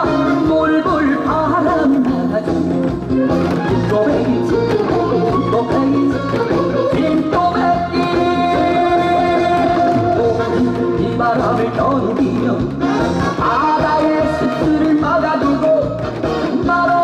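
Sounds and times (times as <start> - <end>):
person singing: 0.0 - 17.0
upbeat backing track: 0.0 - 17.0.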